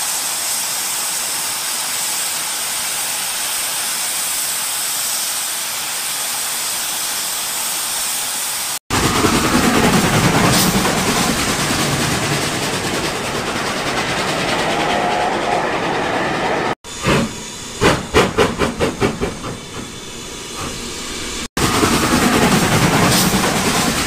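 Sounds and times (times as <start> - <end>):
model train wheels rumbling: 8.9 - 24.0.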